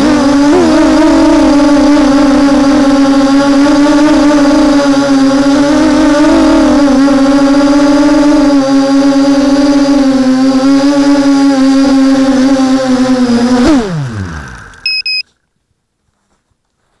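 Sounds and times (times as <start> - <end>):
drone motors buzzing whine: 0.0 - 15.2
short electronic beeps: 14.8 - 15.3.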